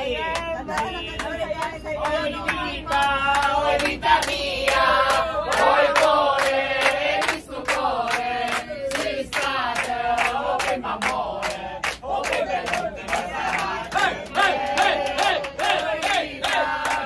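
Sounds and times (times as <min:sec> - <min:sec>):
group singing in chorus: 0:00.0 - 0:17.0
people clapping in rhythm: 0:00.0 - 0:17.0.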